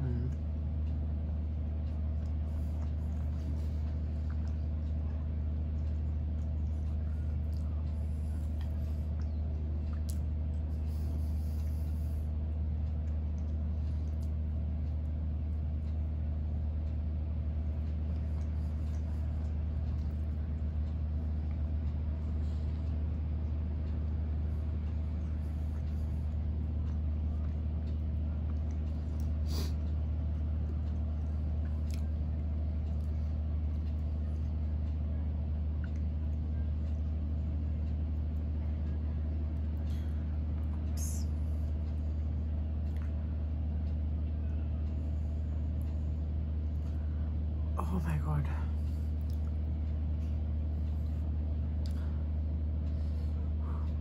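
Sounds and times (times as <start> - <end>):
steady low hum: 0.0 - 54.0
person chewing: 2.2 - 4.7, 31.6 - 32.1.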